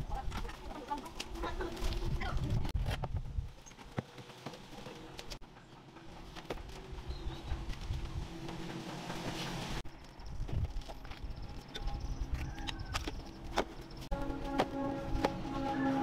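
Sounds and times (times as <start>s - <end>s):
small birds chirping: 6.7s - 8.1s.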